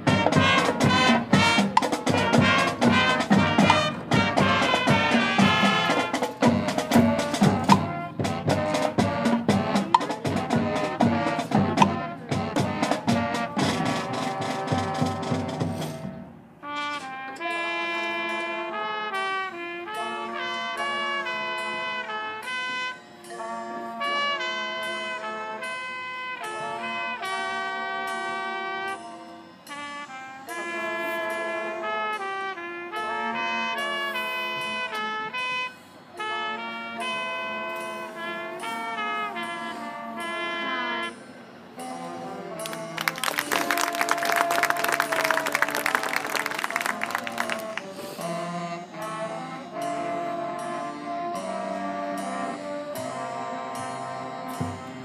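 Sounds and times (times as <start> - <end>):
drums: 0.0 - 17.6, 53.8 - 55.0
marching band brass: 0.0 - 55.0.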